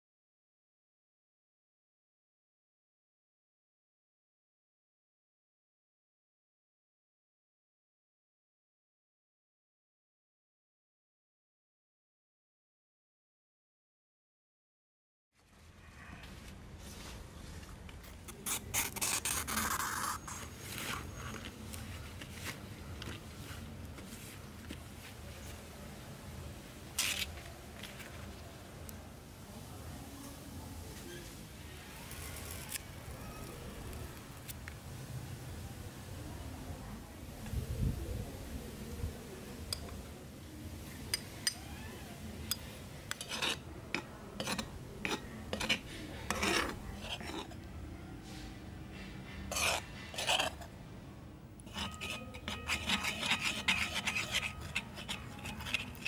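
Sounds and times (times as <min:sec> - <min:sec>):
metal spoon clinking on basin: 0:51.7 - 0:56.0.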